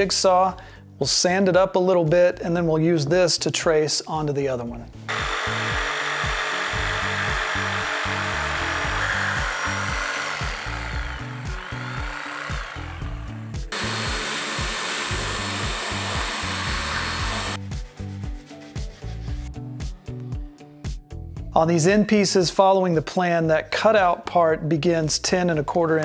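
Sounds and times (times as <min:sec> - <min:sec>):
jigsaw cutting wood: 0:05.1 - 0:17.6
drill drum sanding wood: 0:05.1 - 0:17.8.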